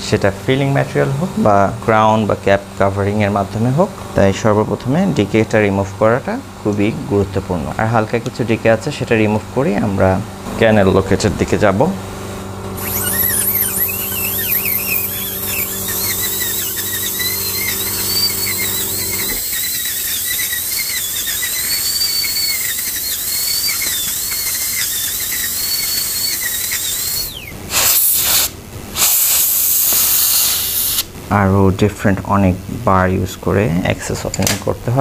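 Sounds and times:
steady low hum: 0.0 - 35.0
dental drill whine: 12.8 - 31.1
hiss of air: 27.7 - 31.1.

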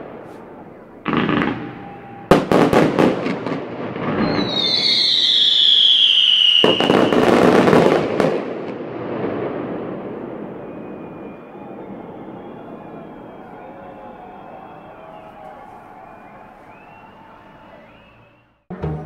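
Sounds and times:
firework cracks: 0.0 - 14.0
crackling firework reports: 0.0 - 18.3
falling firework whistle: 0.1 - 18.6.

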